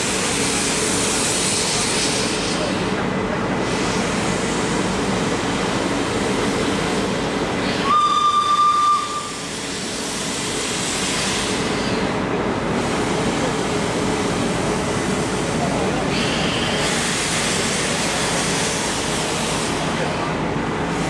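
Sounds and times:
steam train running: 0.0 - 21.0
steam whistle blast: 7.8 - 9.5.

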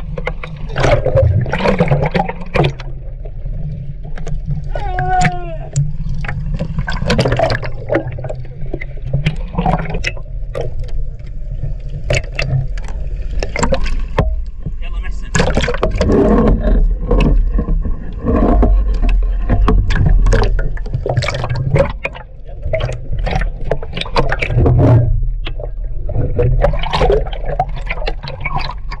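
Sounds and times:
water sloshing and gurgling: 0.0 - 29.0
water splashes: 0.0 - 29.0
splashy clicks: 15.2 - 29.0.

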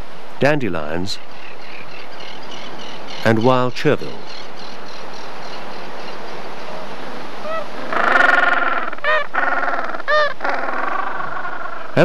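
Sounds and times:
outdoor background noise: 0.0 - 12.0
animal calls rising and falling: 6.6 - 12.0.

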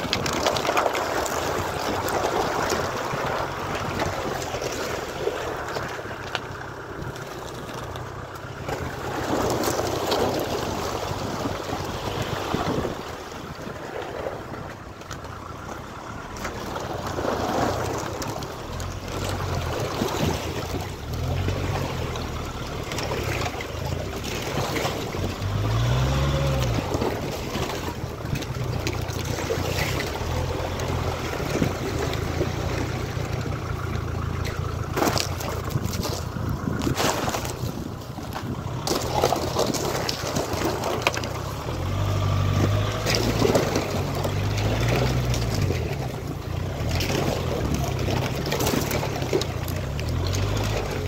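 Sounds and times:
car engine revving: 20.9 - 37.1.

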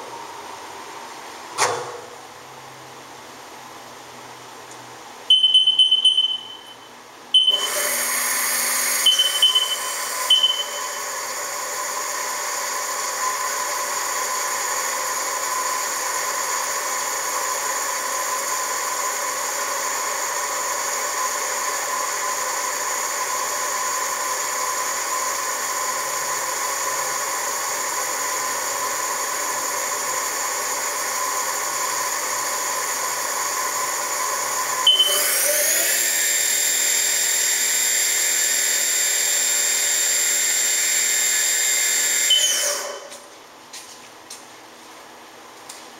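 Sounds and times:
electronic beeps: 5.3 - 7.8, 9.1 - 11.0, 34.9 - 35.3
mill machine whine: 5.3 - 43.5.

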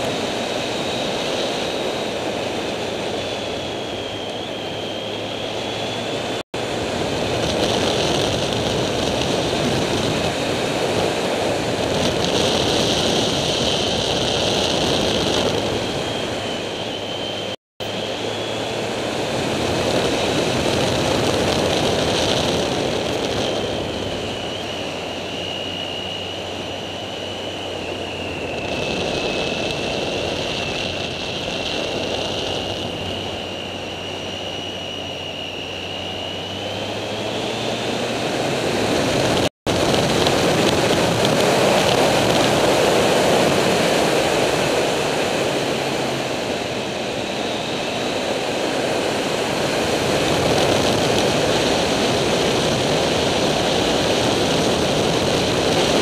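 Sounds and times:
motorcycle engine running: 0.0 - 25.3, 27.7 - 35.4, 36.1 - 56.0
thin steady whine: 0.0 - 56.0
wind rushing over microphone: 0.0 - 56.0.

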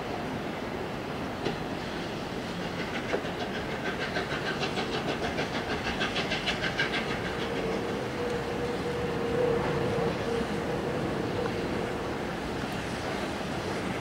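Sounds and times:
steam locomotive chuffing: 1.5 - 14.0.

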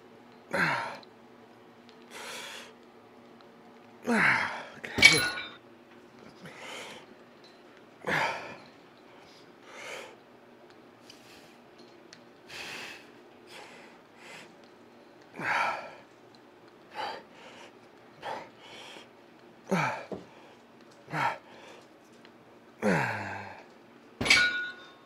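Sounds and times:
man grunting: 0.5 - 1.0, 4.1 - 5.3, 19.7 - 20.1, 22.8 - 23.6.

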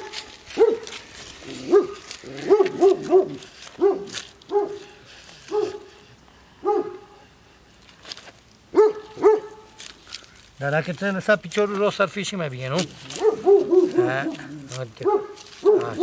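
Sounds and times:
dog barking: 0.0 - 0.9, 1.6 - 4.9, 5.5 - 5.9, 6.6 - 7.2, 8.7 - 9.7, 13.1 - 16.0.

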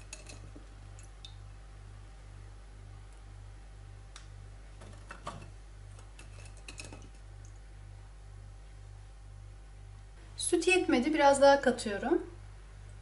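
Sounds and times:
low steady hum: 0.0 - 13.0
biscuits clicking and tapping: 4.2 - 7.6.

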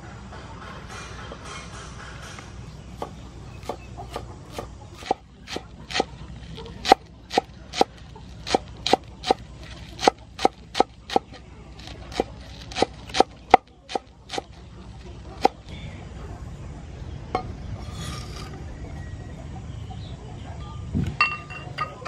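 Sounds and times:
cleaver chopping on wooden board: 3.0 - 6.1, 6.8 - 9.4, 10.0 - 14.5.

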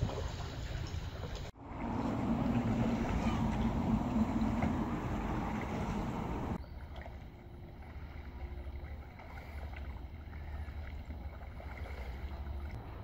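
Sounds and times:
wind rumble on microphone: 1.6 - 6.6.

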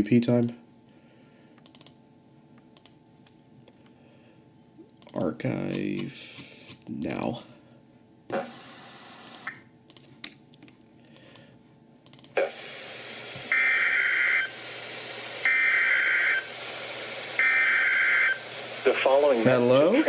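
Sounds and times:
steady radio hiss: 5.2 - 9.2, 12.4 - 20.0.

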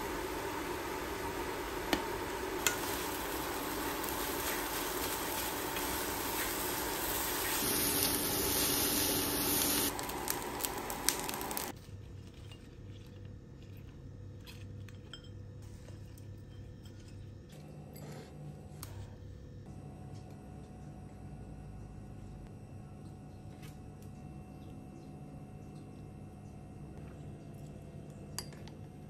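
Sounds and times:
steady hiss: 0.0 - 11.7.

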